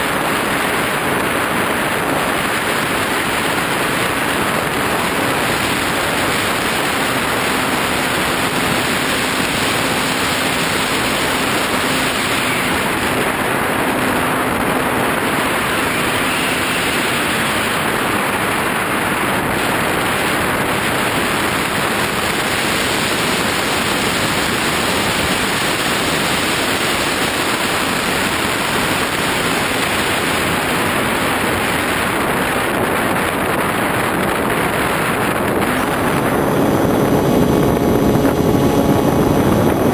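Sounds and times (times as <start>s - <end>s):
wind rushing over camera: 0.0s - 39.9s.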